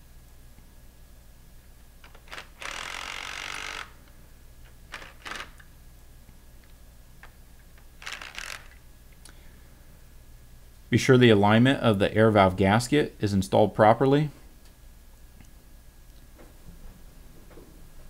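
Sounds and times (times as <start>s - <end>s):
cordless power driver running: 2.0s - 4.1s, 4.9s - 5.6s, 8.0s - 8.8s.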